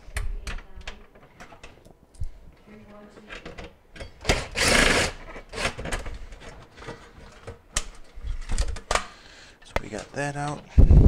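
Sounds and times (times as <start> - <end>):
loud rasping burst: 4.3 - 5.8
clicks and handling noise: 5.3 - 10.7.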